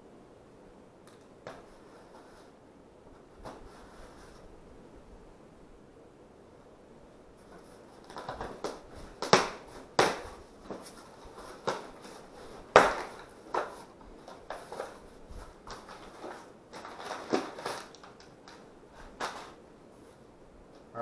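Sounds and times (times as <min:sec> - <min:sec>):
packing paper crinkling: 0:07.5 - 0:19.6.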